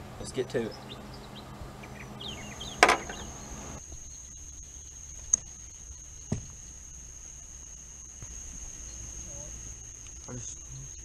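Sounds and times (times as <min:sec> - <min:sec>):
bird chirps: 0:00.2 - 0:06.8
high-pitched insect chorus: 0:00.3 - 0:11.0
sharp knock: 0:02.8 - 0:03.2.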